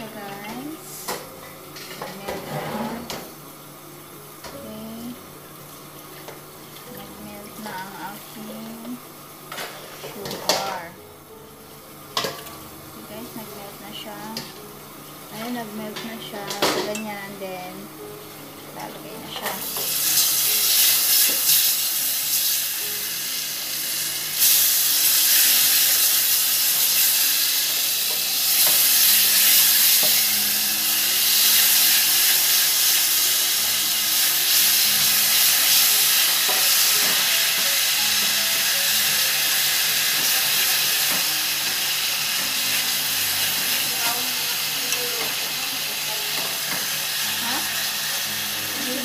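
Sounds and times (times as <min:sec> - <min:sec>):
meat sizzling in caramel: 0:00.0 - 0:49.0
chopsticks scraping a pot: 0:02.4 - 0:03.1.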